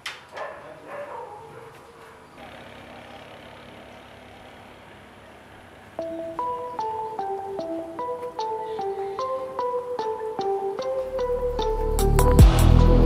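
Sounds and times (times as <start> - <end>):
background hiss: 3.8 - 12.4
plucked guitar music: 6.0 - 13.0.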